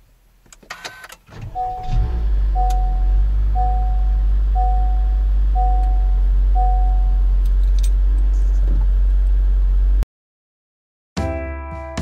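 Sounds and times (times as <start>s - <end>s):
car warning chime: 1.4s - 7.4s
low cabin rumble: 1.4s - 10.0s.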